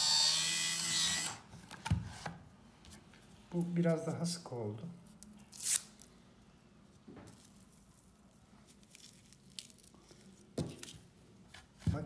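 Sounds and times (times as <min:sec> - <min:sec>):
paper tube tearing: 0:05.4 - 0:06.1
paper and tobacco crackling: 0:07.4 - 0:11.1.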